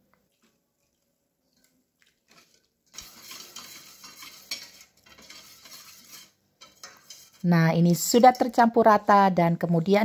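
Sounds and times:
wire whisk clinking in metal bowl: 2.4 - 7.4.

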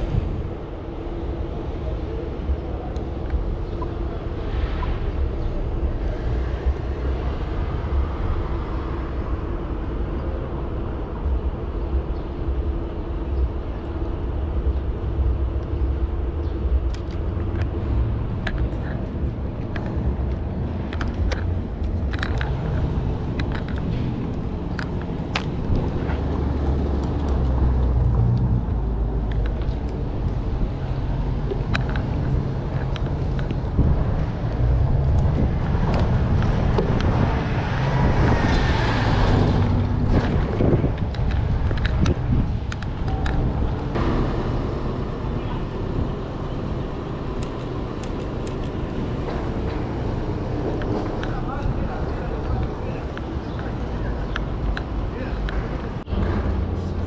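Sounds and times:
traffic rumble: 0.0 - 57.0
sharp clicks: 47.4 - 48.8.

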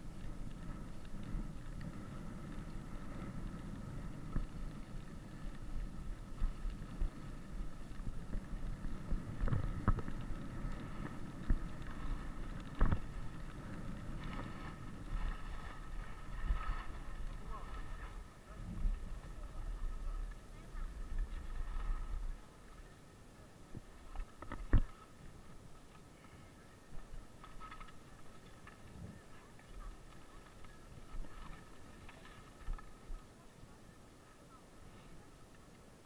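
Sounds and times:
wind on microphone: 0.0 - 22.9, 23.6 - 25.9
skis scraping on snow: 0.0 - 35.7.

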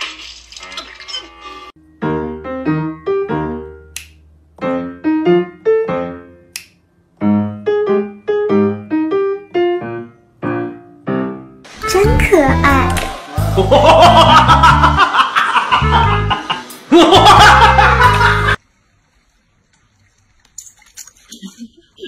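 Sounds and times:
piano music: 1.1 - 4.0, 4.6 - 18.6
sharp snap-like clicks: 6.5 - 6.8.

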